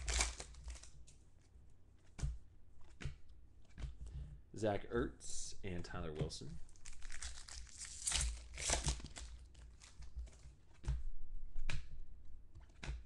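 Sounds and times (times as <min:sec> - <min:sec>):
foil wrapper crinkling and tearing: 0:00.0 - 0:01.1, 0:06.7 - 0:10.5.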